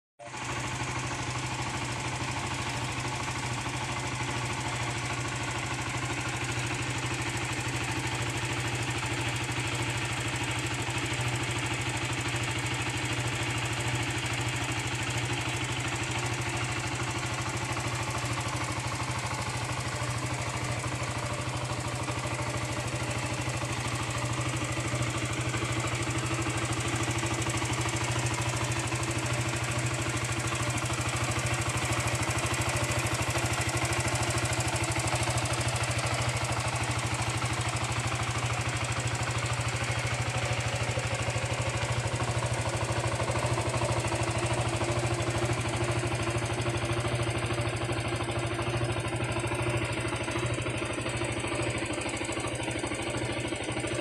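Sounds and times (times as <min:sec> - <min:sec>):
motorcycle engine idling: 0:00.2 - 0:54.0.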